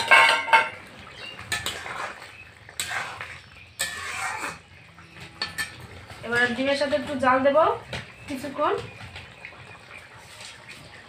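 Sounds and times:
metal spatula scraping a pan: 0:00.0 - 0:07.1.

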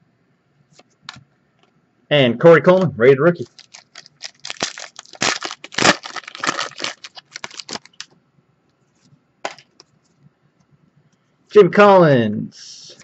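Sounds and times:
foil wrapper crinkling: 0:03.4 - 0:08.1.

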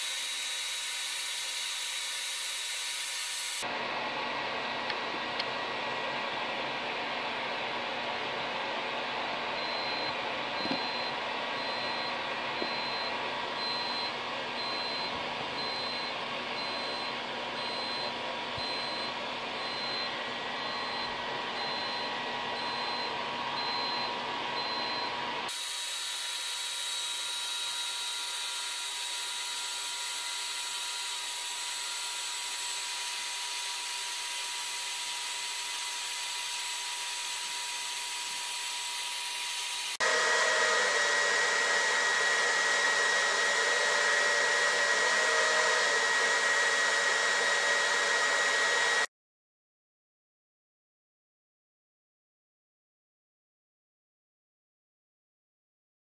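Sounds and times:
air blower rushing: 0:39.9 - 0:49.1.

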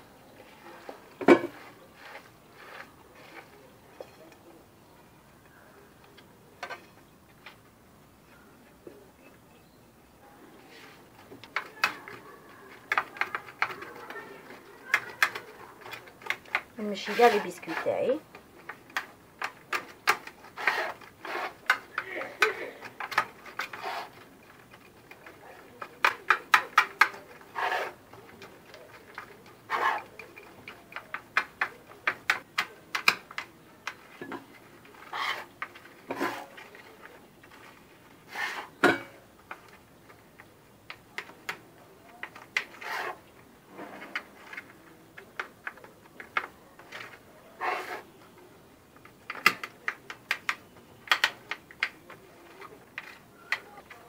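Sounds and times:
spoon scraping metal: 0:47.6 - 0:48.1.

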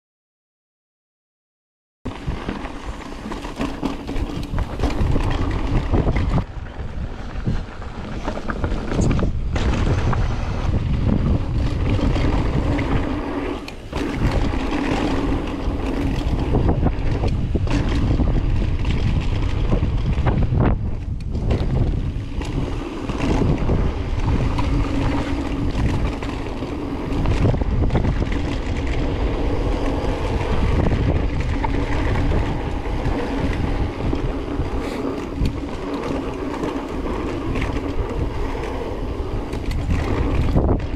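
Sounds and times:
bike tyres rumbling: 0:02.1 - 0:40.9
wind buffeting microphone: 0:02.1 - 0:40.9
bike knocking over bumps: 0:02.2 - 0:06.4, 0:13.8 - 0:20.4.

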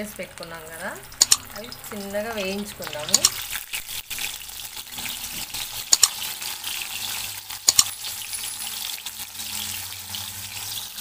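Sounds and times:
fish sizzling in hot oil: 0:00.0 - 0:11.0
sharp double click: 0:01.2 - 0:01.5, 0:07.6 - 0:07.9.

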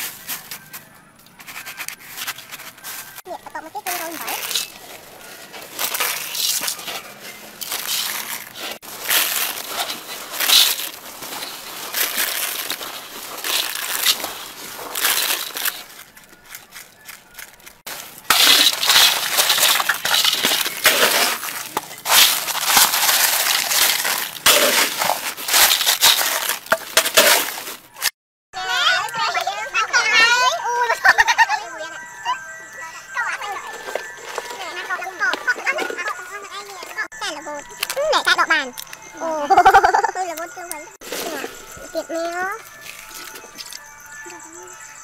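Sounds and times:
crushed ice crunching and rattling: 0:00.0 - 0:28.8, 0:32.6 - 0:44.8
ice shaken out of metal bowl: 0:03.9 - 0:16.0, 0:17.9 - 0:27.9.

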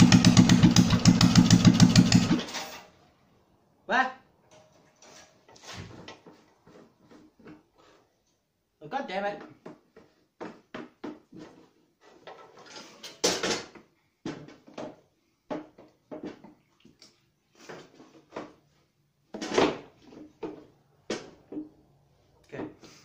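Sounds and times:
tools and metal parts clanking: 0:02.3 - 0:03.0, 0:12.1 - 0:13.8.

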